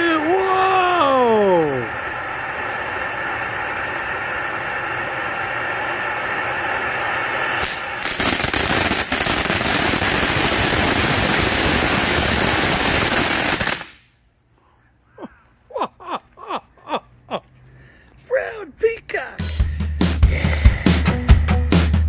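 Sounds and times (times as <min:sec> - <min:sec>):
ground fountain firework hissing: 0:00.0 - 0:14.1, 0:17.6 - 0:21.3
firework crackling: 0:00.0 - 0:14.2.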